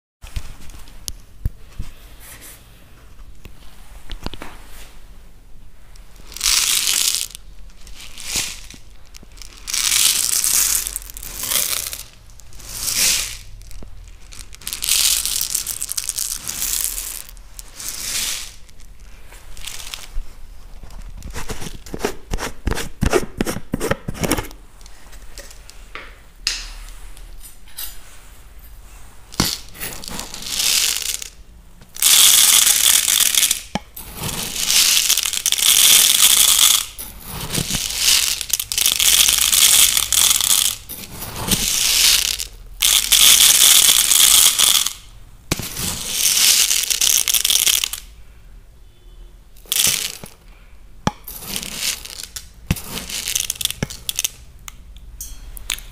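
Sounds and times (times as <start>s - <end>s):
rice grains rattling: 6.0s - 20.2s, 29.2s - 48.1s, 51.2s - 54.5s.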